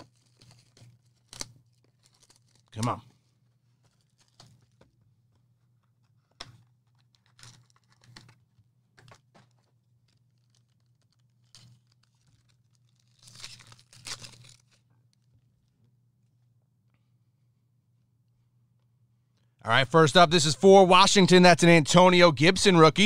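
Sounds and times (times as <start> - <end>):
card wrapper crinkling: 0.0 - 4.8, 6.8 - 15.3.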